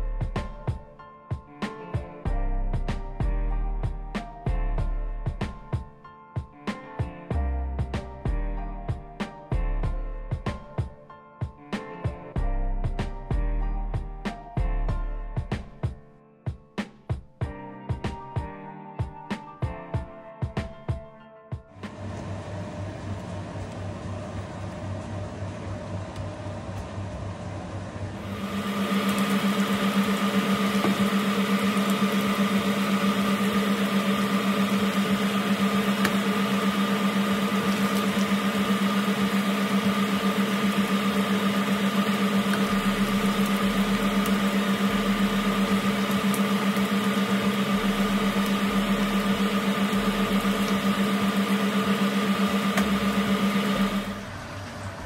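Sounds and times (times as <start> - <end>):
mechanical hum: 21.8 - 55.0
oil sizzling while deep-frying: 28.2 - 55.0.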